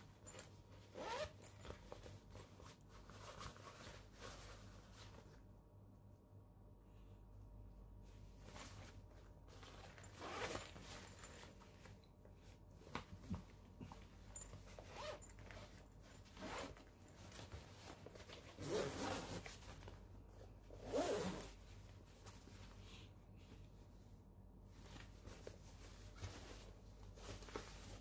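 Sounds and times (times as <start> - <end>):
backpack zippers zipping: 0.9 - 1.5, 10.1 - 10.8, 14.9 - 15.3, 16.4 - 16.8, 18.6 - 19.5, 20.8 - 21.6.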